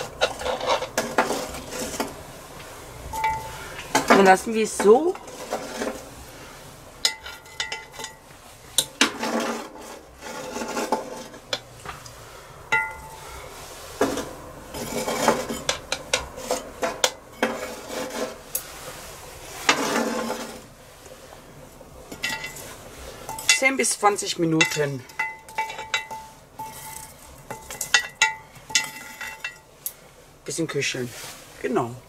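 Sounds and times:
metal tongs clinking and scraping: 0.0 - 2.1, 3.1 - 6.0, 7.0 - 8.2, 22.1 - 30.0
metallic ring: 3.1 - 3.6, 12.7 - 13.2.

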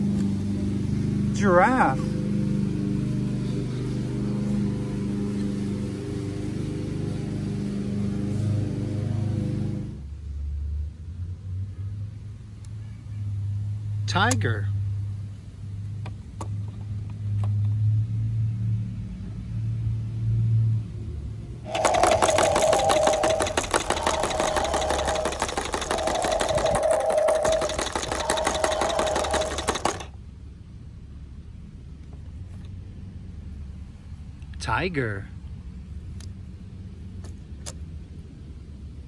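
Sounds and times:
toy motor and gears whining: 21.7 - 30.1.

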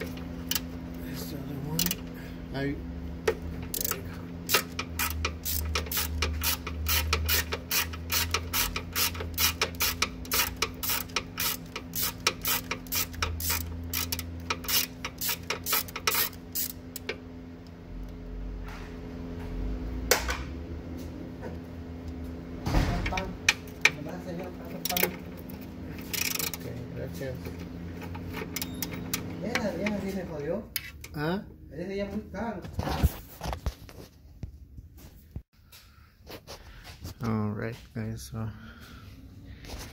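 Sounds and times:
ratchet wrench clicking: 1.7 - 2.1, 3.3 - 17.2, 24.8 - 26.7, 28.1 - 30.0.

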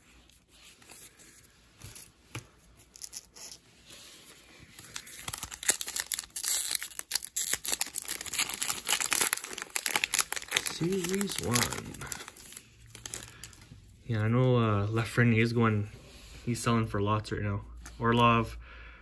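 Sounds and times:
foil wrapper crinkling and tearing: 4.6 - 13.7.

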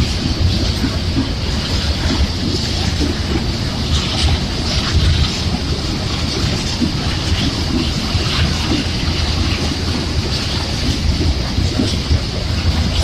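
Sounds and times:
freight train rumbling past: 0.0 - 13.0.

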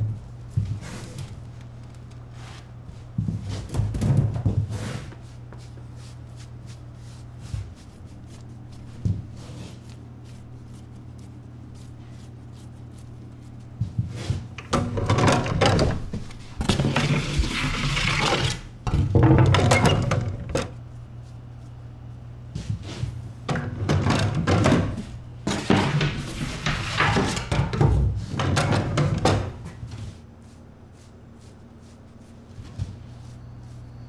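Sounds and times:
steady low hum: 0.0 - 17.7, 18.5 - 34.0
wooden peel knocking and scraping: 23.5 - 29.8.

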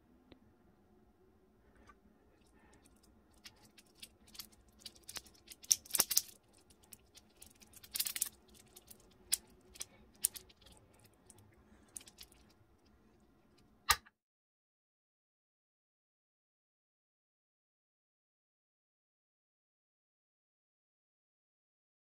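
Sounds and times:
fidget toy blocks clicking: 2.8 - 12.5.

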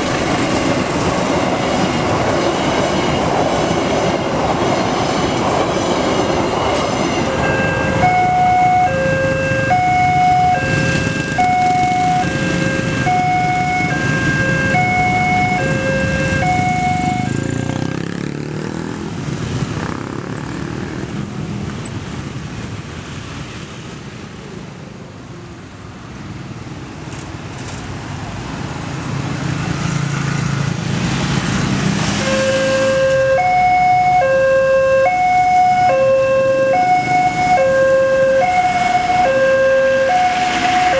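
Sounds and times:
passing train rumble: 0.0 - 40.9
road traffic noise: 0.0 - 40.9
two-tone crossing alarm: 6.6 - 17.8, 32.2 - 40.9.

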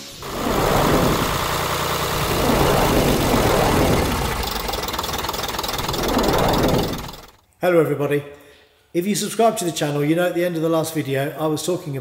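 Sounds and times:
engine running roughly: 0.0 - 7.4.

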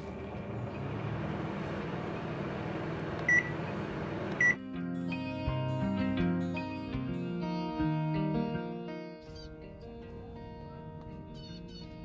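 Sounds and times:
microwave oven humming: 0.0 - 4.6.

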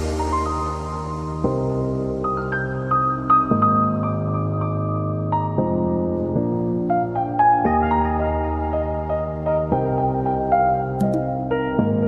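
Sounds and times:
held keyboard chords: 0.0 - 12.0
climbing single note melody: 11.0 - 11.3.

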